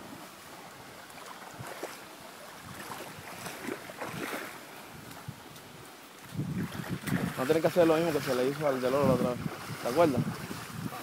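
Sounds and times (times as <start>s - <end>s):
faint water splashes: 0.0s - 11.0s
floodwater rushing: 0.0s - 11.0s.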